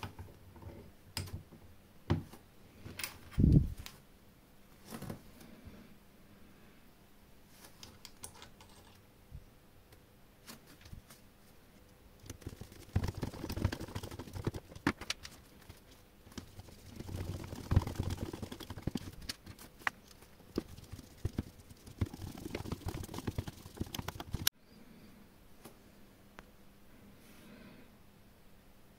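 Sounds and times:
clicks and knocks of objects handled: 7.6 - 9.0.

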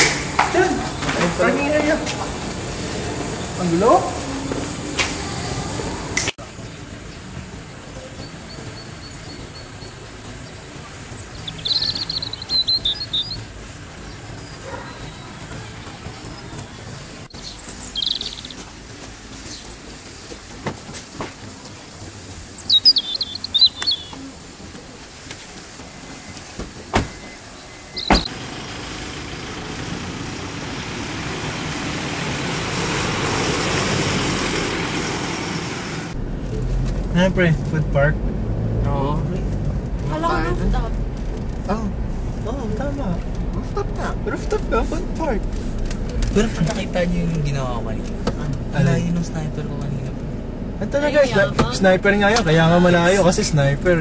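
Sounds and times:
outdoor background noise: 0.0 - 54.0
small bird chirping: 8.2 - 15.5, 16.1 - 18.7, 22.4 - 24.3, 27.6 - 28.3
car doors slamming: 26.5 - 27.4, 28.0 - 28.4
car driving past: 28.0 - 44.2.

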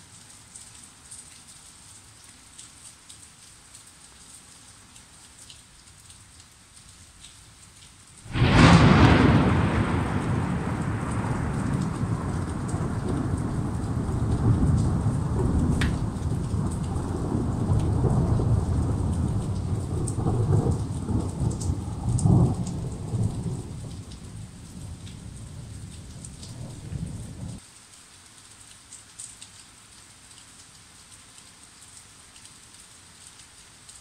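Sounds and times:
steady rain: 0.0 - 34.0
thunder rumbling: 8.3 - 27.6.

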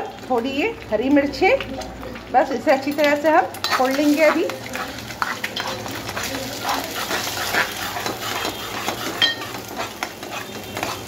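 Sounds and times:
food sizzling in hot oil: 0.0 - 11.0
spatula scraping a pot: 3.6 - 11.0.

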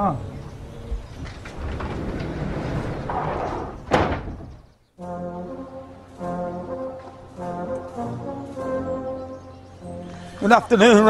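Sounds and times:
slow brass music: 5.0 - 11.0.

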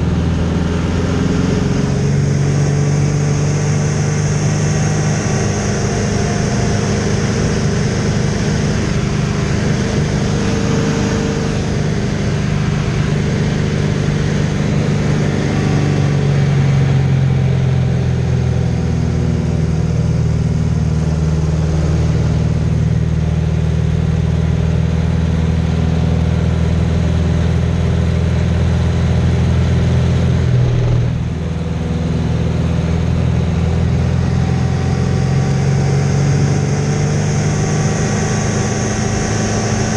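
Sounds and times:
plane engine and propeller: 0.0 - 39.9.

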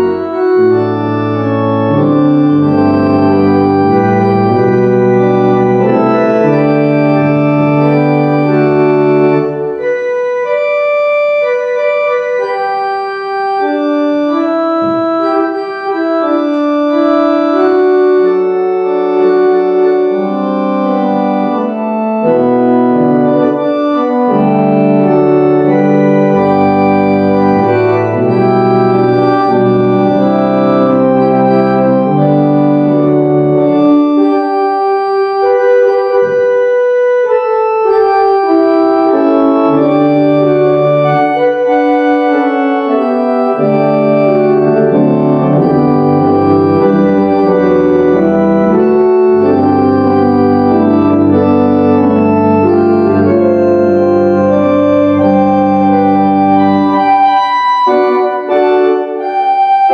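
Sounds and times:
organ playing slow chords: 0.0 - 59.9.

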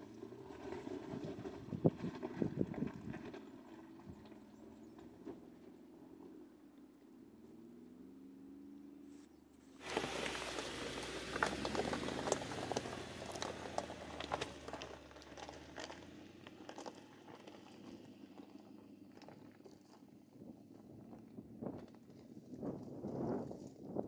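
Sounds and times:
faint engine hum: 0.0 - 24.0
tyres crunching over gravel: 9.8 - 23.8.

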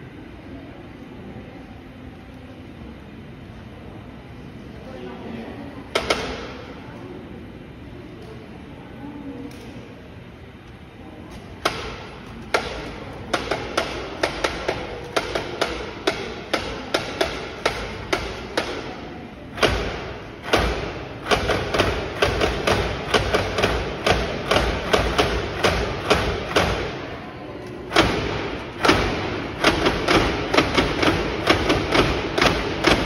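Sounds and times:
wooden clock clacking: 12.5 - 18.9, 19.6 - 27.0, 27.9 - 33.0.

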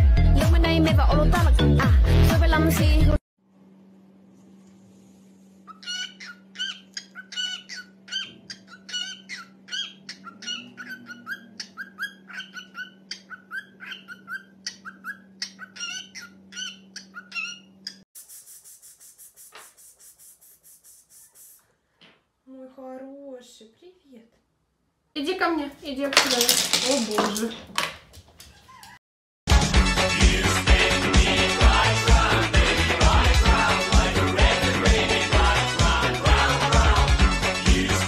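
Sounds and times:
cockatiel chirping: 5.7 - 18.0.

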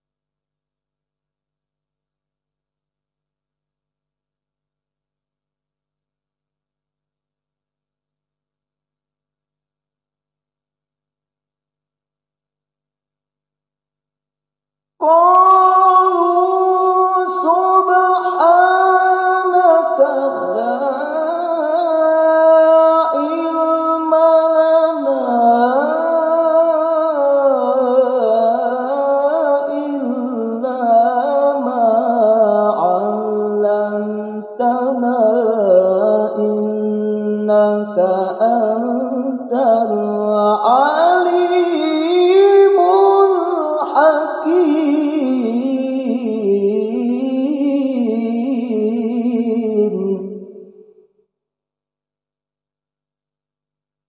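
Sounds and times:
man reciting melodically: 15.0 - 50.4.

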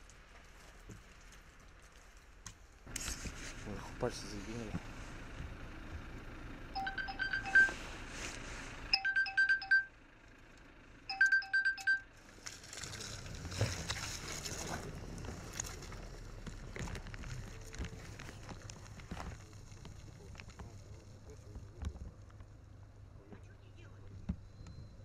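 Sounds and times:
quick electronic beeps: 6.8 - 7.8, 9.0 - 9.9, 11.1 - 12.0
car wheels churning through ash: 12.2 - 23.2.

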